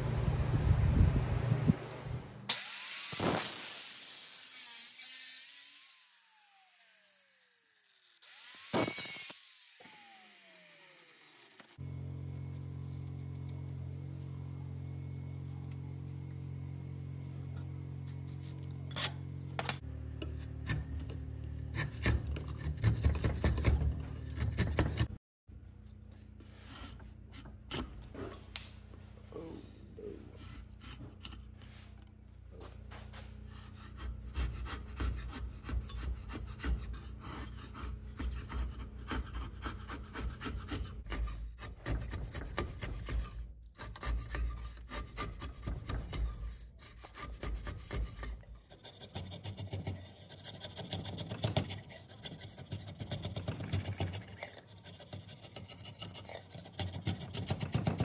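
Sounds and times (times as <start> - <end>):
drawknife shaving wood: 9.9 - 18.9, 20.2 - 25.2, 26.0 - 28.7, 30.0 - 58.0.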